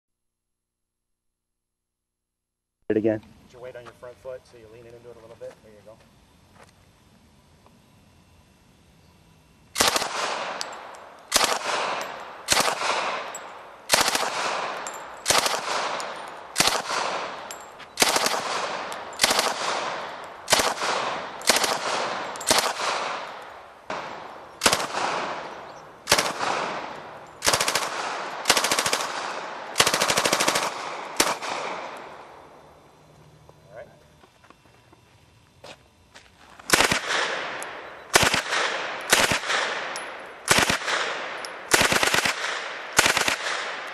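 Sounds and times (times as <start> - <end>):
automatic gunfire bursts: 9.8 - 10.6, 11.3 - 17.4, 18.0 - 23.2, 23.9 - 32.0, 36.7 - 43.9.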